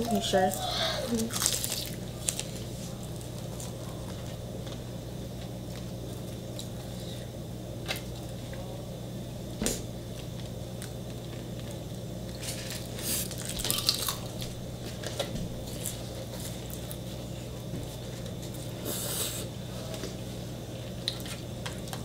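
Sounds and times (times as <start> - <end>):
chewing food: 0.0 - 4.8, 10.2 - 17.0
crisp crunching: 0.0 - 4.8, 10.8 - 17.0
steady low hum: 0.0 - 22.0.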